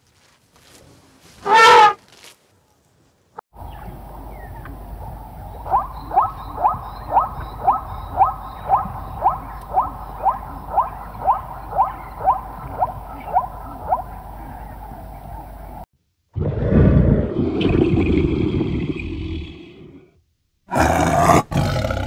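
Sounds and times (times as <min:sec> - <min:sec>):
steady outdoor hiss: 0:00.0 - 0:16.3
animal calling upward-gliding notes: 0:03.7 - 0:15.8.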